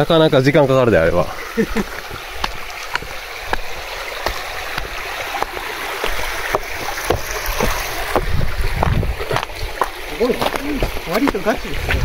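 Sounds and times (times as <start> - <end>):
stream water rushing: 0.0 - 12.0
soft knocks: 2.0 - 11.5.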